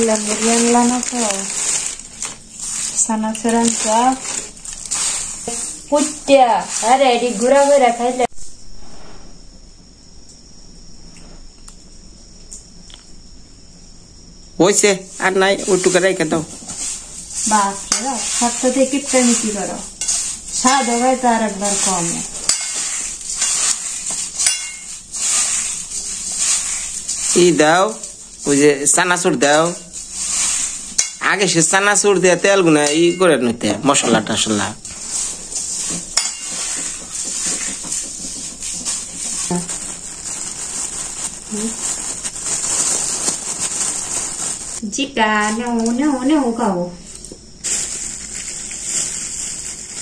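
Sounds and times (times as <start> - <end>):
grains clinking on metal plate: 0.0 - 8.2, 15.1 - 44.8
puffed rice rustling crackle: 0.0 - 8.5, 14.6 - 50.0.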